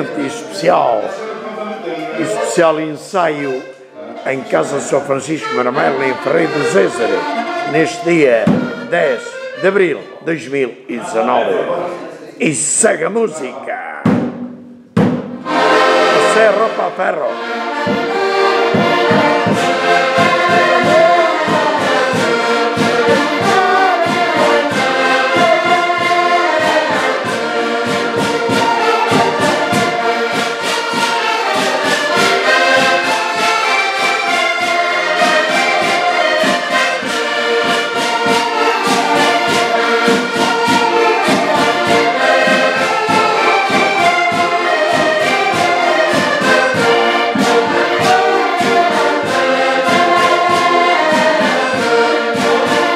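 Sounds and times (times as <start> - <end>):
accordions playing folk tune: 0.0 - 14.0, 15.0 - 52.9
hand drum beat: 13.7 - 16.2, 17.4 - 33.6, 34.6 - 52.9.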